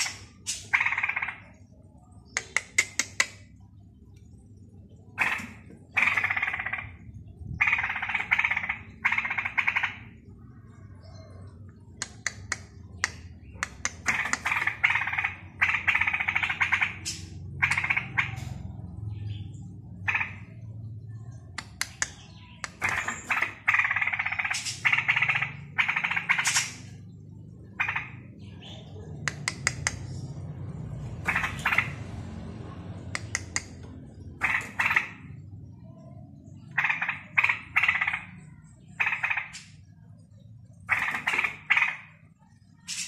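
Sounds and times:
sharp bird clicks: 0.0s - 4.3s, 5.2s - 6.9s, 11.6s - 18.6s, 21.4s - 27.1s, 29.2s - 30.3s, 33.0s - 35.3s, 42.8s - 43.0s
bird warbling song: 0.0s - 43.0s.

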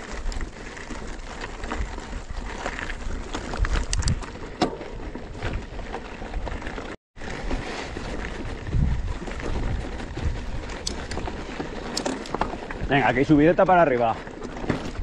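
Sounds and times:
bike rattling over stones: 0.0s - 15.0s
bike tyres crunching on gravel: 0.0s - 15.0s
wind rumbling on microphone: 0.0s - 15.0s.

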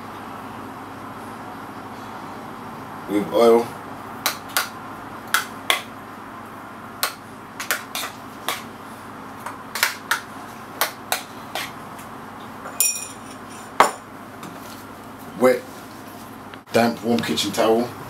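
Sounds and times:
ringing clink: 12.8s - 13.7s.

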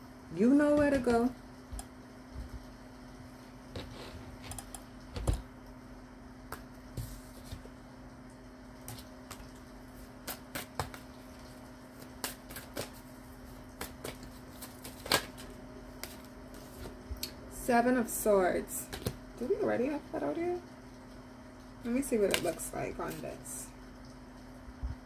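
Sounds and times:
faint steady hum: 0.0s - 25.0s
cards being shuffled: 11.9s - 17.0s.

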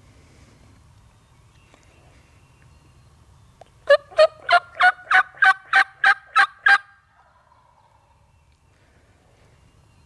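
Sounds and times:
turkey yelping: 3.9s - 7.5s.

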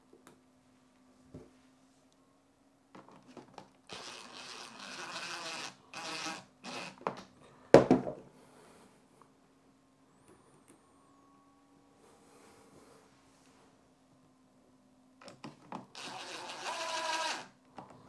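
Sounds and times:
cordless drill driving screws: 3.9s - 7.0s, 15.9s - 17.6s.

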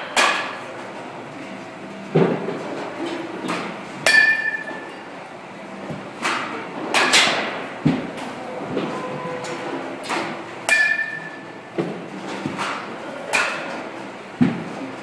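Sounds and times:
baseball bat hitting balls: 0.0s - 0.6s, 3.5s - 5.0s, 5.9s - 8.8s, 10.0s - 14.9s.

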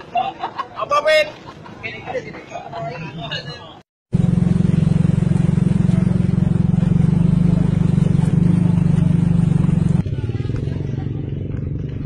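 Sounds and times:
vehicle engine running: 4.1s - 12.0s.

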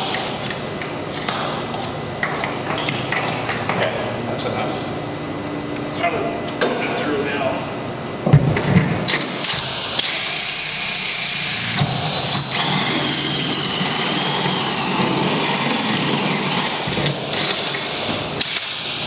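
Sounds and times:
cordless drill with hole saw: 10.0s - 17.8s.

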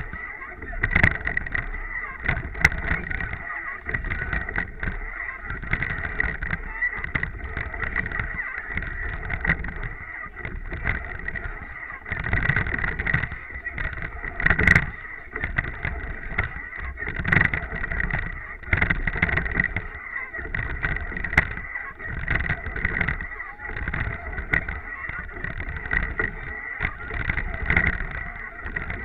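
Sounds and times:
water slapping against boat bow: 0.0s - 29.0s
wind on microphone: 0.0s - 29.0s.

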